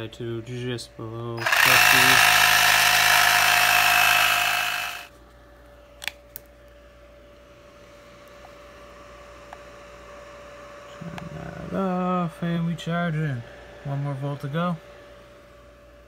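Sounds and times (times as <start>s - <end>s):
electric compressor running: 1.4s - 5.1s.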